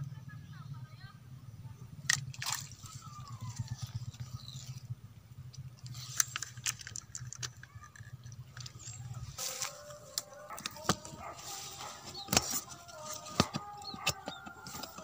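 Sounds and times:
steady low hum: 0:00.0 - 0:07.4
fishing line clicks and rustles: 0:02.0 - 0:15.0.

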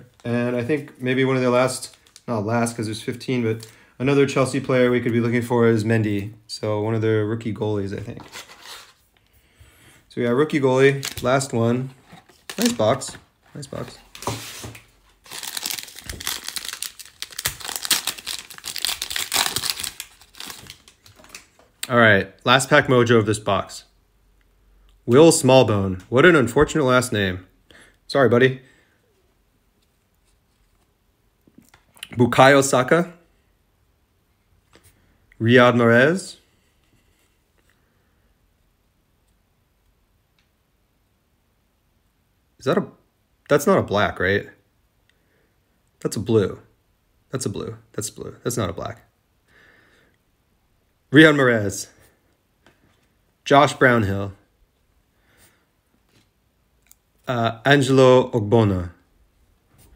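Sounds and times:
foil wrapper crinkling and tearing: 0:15.2 - 0:21.5.

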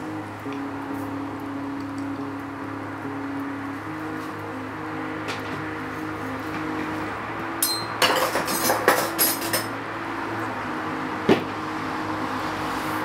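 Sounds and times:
knife clattering on crockery: 0:07.6 - 0:09.7.

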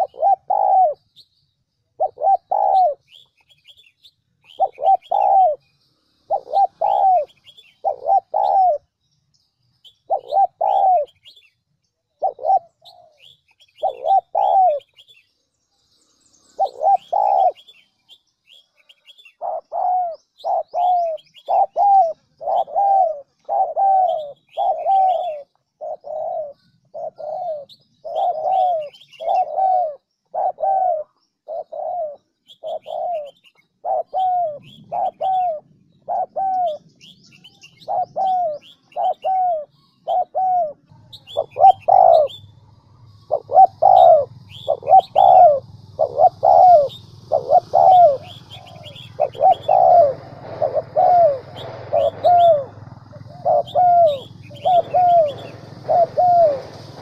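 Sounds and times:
pigeons cooing: 0:00.0 - 0:01.2, 0:01.9 - 0:03.8, 0:04.4 - 0:05.6, 0:06.2 - 0:09.0, 0:09.9 - 0:11.4, 0:12.1 - 0:15.1, 0:16.6 - 0:17.8, 0:19.0 - 0:57.0
small birds chirping: 0:00.0 - 0:57.0.

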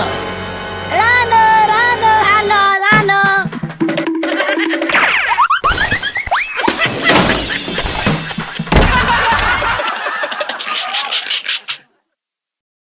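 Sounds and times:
music: 0:00.0 - 0:05.0.

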